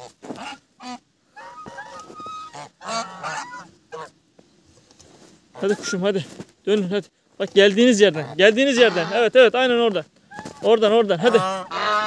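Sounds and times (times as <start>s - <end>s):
geese honking: 0.0s - 4.2s, 5.5s - 6.1s, 7.9s - 12.0s.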